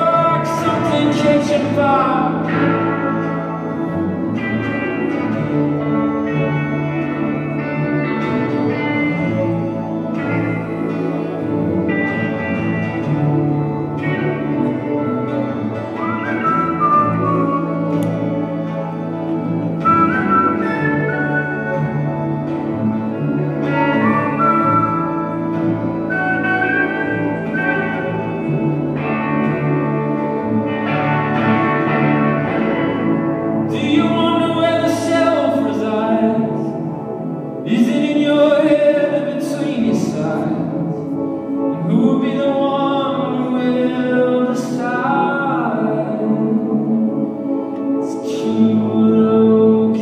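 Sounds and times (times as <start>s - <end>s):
sliding melody line: 0.0s - 50.0s.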